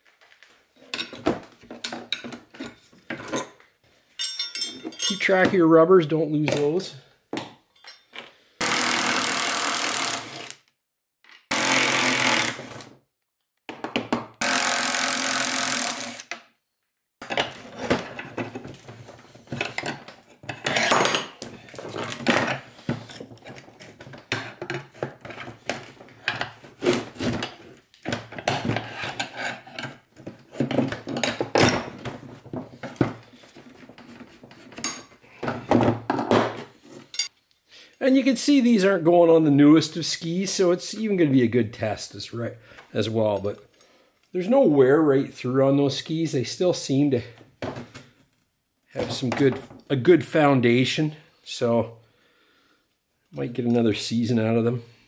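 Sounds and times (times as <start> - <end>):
screwdriver scraping and knocking: 17.2 - 35.7.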